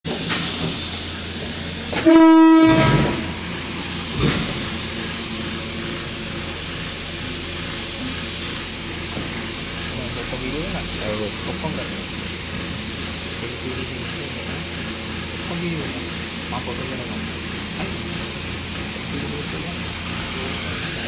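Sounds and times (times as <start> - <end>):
train engine rumble: 0.1 - 21.0
train horn blast: 1.9 - 3.6.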